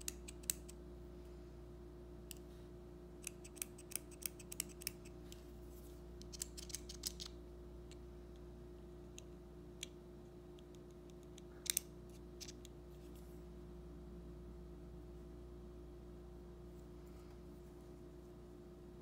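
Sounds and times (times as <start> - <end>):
mechanical pencil clicking: 0.0 - 0.8, 3.2 - 5.1.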